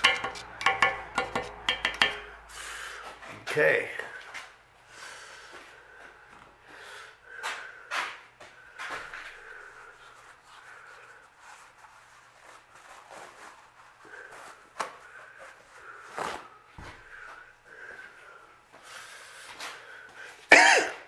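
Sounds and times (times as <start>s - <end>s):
tools clattering on a workbench: 0.0s - 2.3s.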